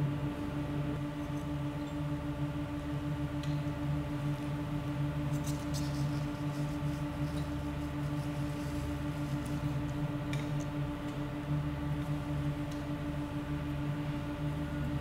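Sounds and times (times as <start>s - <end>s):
low drone of held tones: 5.8s - 15.0s.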